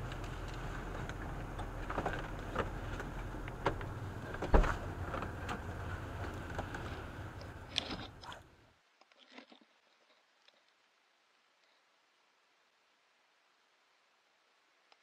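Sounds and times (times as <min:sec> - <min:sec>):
small clicks and knocks: 0:00.0 - 0:08.3
engine hum: 0:00.0 - 0:08.7.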